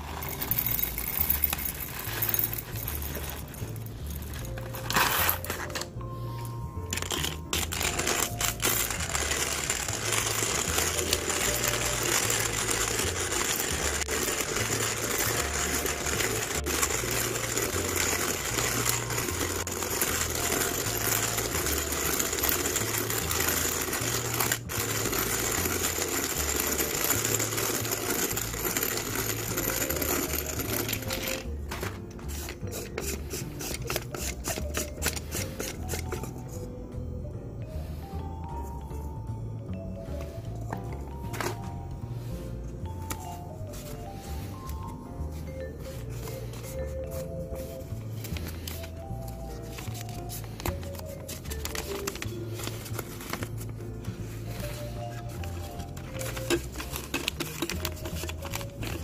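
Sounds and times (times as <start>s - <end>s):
manual coffee grinder crunching beans: 6.8s - 36.6s, 46.2s - 59.0s.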